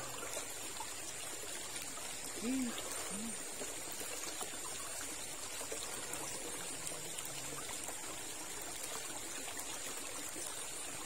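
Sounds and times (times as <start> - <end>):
river water trickling over stones: 0.0 - 11.0.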